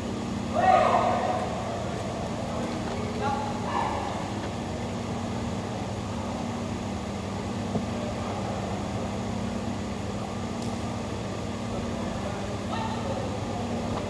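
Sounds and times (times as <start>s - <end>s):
mechanical hum: 0.0s - 14.0s.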